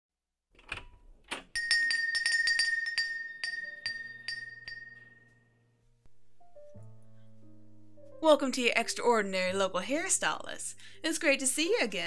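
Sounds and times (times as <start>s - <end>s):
shop door bell jingling: 1.5s - 5.3s.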